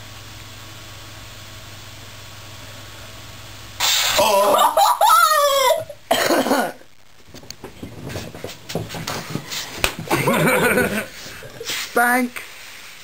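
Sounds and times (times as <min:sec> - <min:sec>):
person's wordless cry: 0:04.2 - 0:06.0
knocks and rustling: 0:07.2 - 0:10.2.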